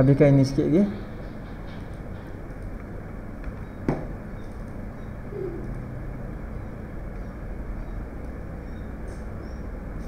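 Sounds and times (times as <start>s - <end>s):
background hum and hiss: 0.0s - 10.0s
sharp knock: 3.9s - 4.1s
faint low hoot: 5.0s - 5.8s.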